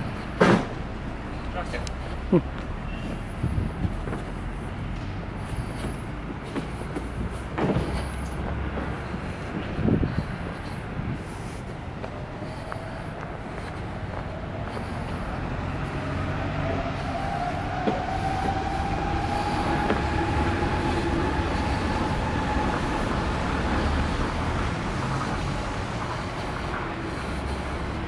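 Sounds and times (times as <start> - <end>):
large vehicle passing: 7.1 - 28.0.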